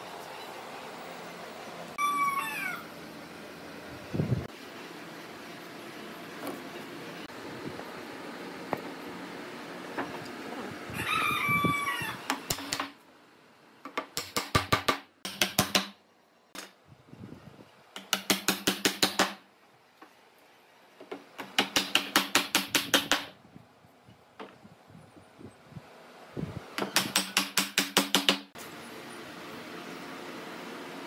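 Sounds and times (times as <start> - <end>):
rooster crowing: 2.0 - 3.0, 10.9 - 12.3.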